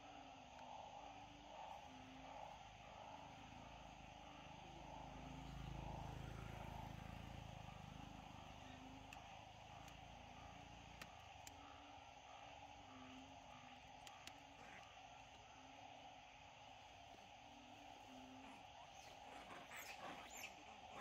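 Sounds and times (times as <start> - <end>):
steady low hum and hiss: 0.0 - 21.0.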